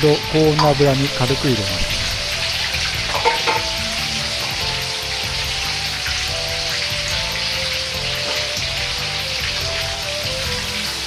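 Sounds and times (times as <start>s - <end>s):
background music: 0.0s - 11.0s
cutlet sizzling in hot oil: 0.0s - 11.0s.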